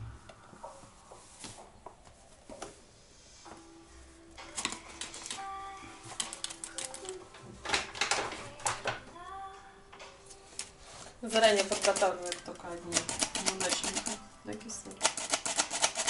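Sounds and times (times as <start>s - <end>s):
flour sifter clicking and rattling: 6.1s - 9.0s, 11.3s - 14.2s, 14.9s - 16.0s.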